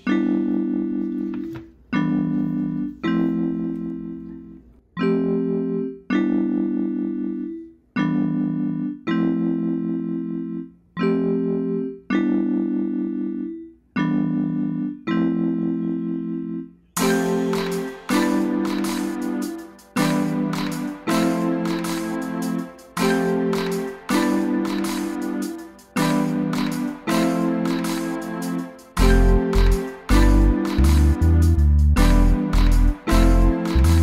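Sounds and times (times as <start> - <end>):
slow keyboard chords: 0.0 - 34.0.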